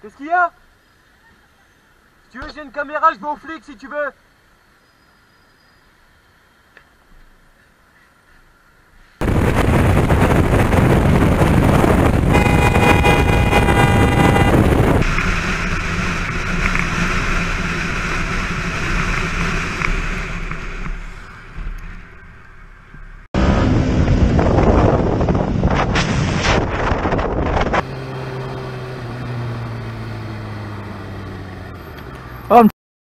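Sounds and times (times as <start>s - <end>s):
wind rushing over helmet: 9.2s - 21.1s, 23.3s - 27.8s
motorcycle engine: 9.2s - 25.9s, 26.9s - 32.5s
vehicle horn blaring: 12.1s - 15.0s.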